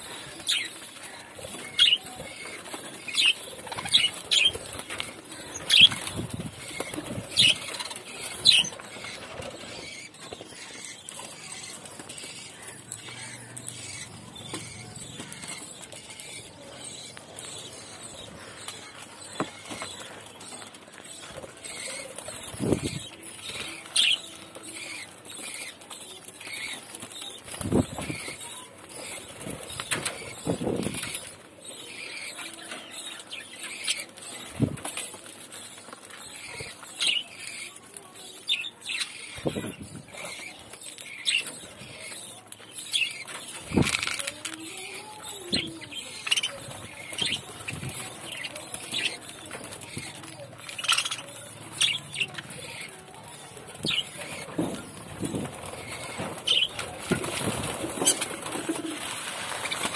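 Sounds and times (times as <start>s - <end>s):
pecking clicks and rustles: 0.1s - 59.9s
wings flapping: 43.2s - 44.6s, 53.8s - 59.9s.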